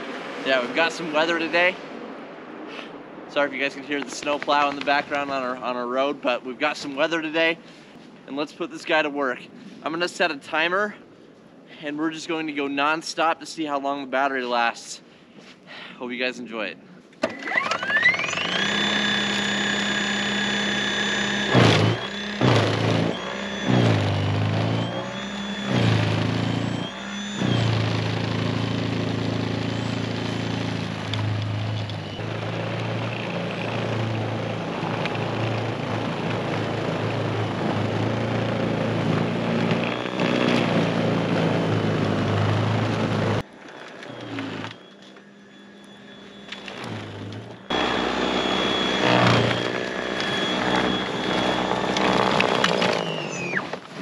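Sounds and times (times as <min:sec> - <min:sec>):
snowblower motor whining: 0:00.5 - 0:01.5, 0:17.2 - 0:54.0.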